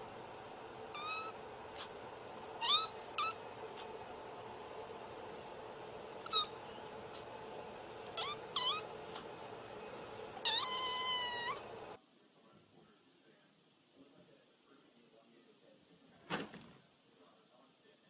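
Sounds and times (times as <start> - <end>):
steady hum: 0.0 - 16.2
kitten meowing: 0.9 - 1.9, 2.6 - 3.4, 6.2 - 6.6, 8.1 - 8.9, 10.4 - 11.6.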